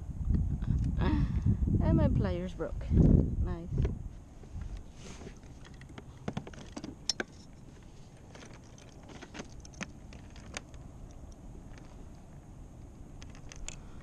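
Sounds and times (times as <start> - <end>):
fishing tackle clicking and rattling: 5.4 - 7.6, 8.2 - 14.0.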